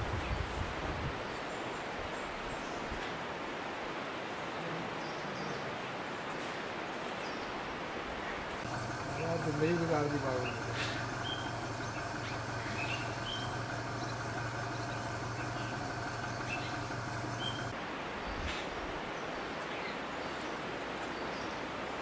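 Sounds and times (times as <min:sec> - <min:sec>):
outdoor background rumble: 0:08.4 - 0:17.8
plain hiss: 0:08.6 - 0:17.7.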